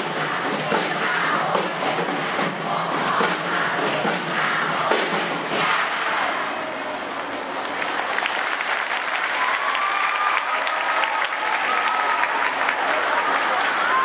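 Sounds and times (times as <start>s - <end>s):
crowd applauding: 7.1s - 14.0s.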